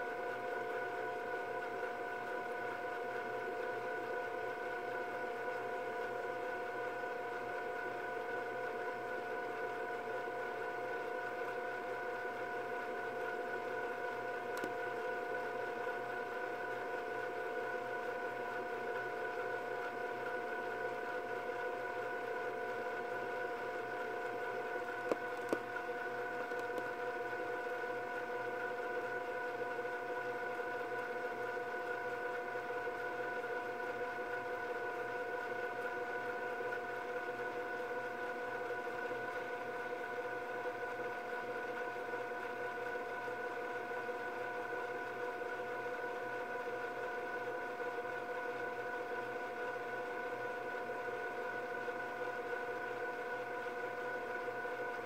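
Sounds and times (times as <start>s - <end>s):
small clicks: 14.5s - 14.8s, 25.1s - 25.6s, 26.5s - 26.9s.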